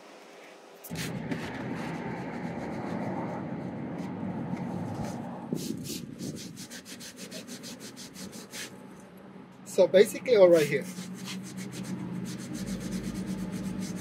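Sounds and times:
towel scrubbing adhesive: 5.6 - 8.8, 10.6 - 14.0.

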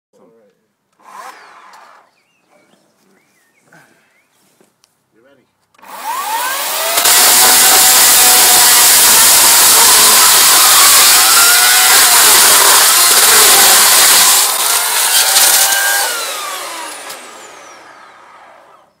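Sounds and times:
chainsaw cutting through metal and plastic: 1.0 - 2.1, 5.8 - 18.9.

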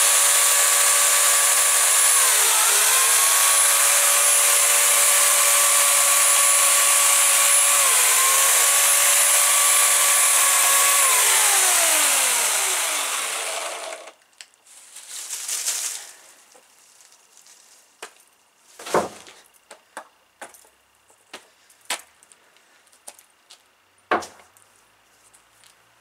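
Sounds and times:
electric chainsaw motor winding down: 0.0 - 14.2
leafy branches rustling: 14.6 - 19.4.

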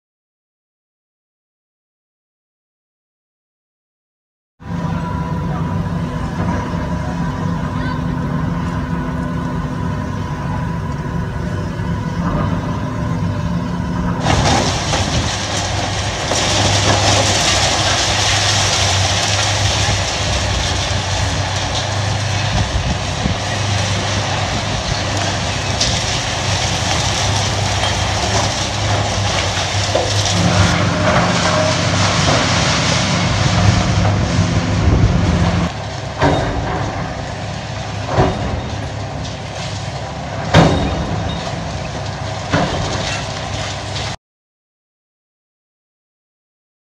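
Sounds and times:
excavator diesel engines running: 4.6 - 44.2
concrete crunching and clattering: 14.2 - 44.2
loud crashes of falling rubble: 14.2 - 44.2.

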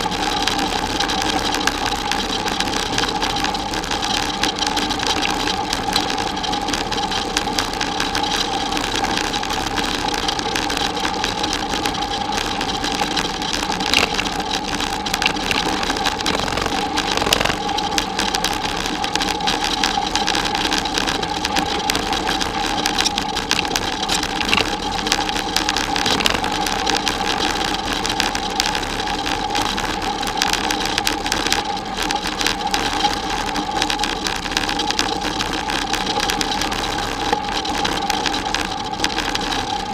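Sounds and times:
constant mechanical hum: 0.0 - 39.9
bicycle tyres crunching gravel: 11.1 - 27.9.

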